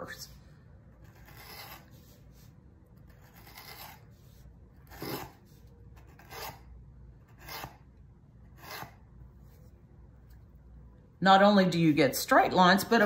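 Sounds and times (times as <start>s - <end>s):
applicator tip scratching on board: 1.0s - 2.0s.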